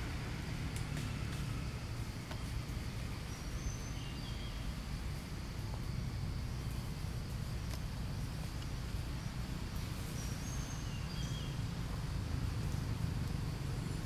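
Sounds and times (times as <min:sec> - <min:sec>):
faint insect buzz: 0:00.0 - 0:14.0
bird chirps: 0:03.2 - 0:04.8, 0:10.0 - 0:11.7.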